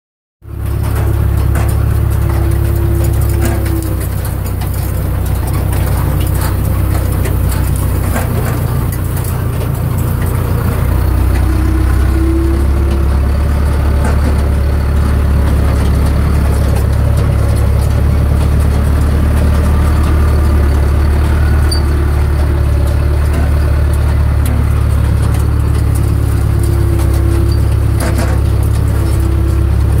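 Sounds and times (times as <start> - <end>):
machinery rattles: 0.4 - 30.0
tractor engine under load: 0.4 - 30.0.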